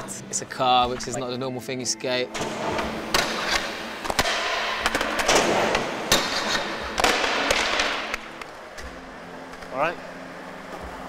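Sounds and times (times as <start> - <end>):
skateboard clattering: 2.4 - 8.8
skateboard wheels rolling: 2.4 - 11.0.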